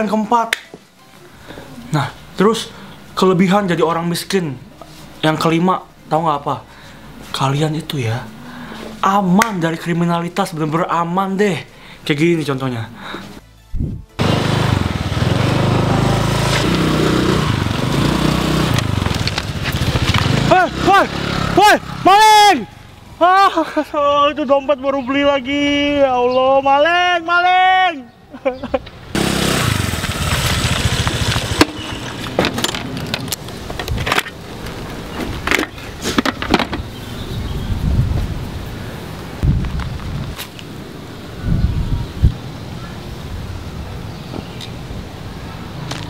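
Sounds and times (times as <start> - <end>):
motor scooter engine running: 14.2 - 22.0, 29.2 - 33.3.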